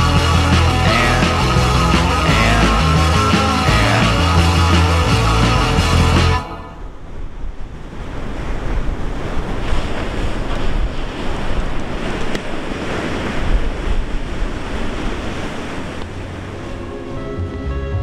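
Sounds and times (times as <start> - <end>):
ocean surf breaking: 0.0 - 17.4
wind buffeting microphone: 4.3 - 17.3.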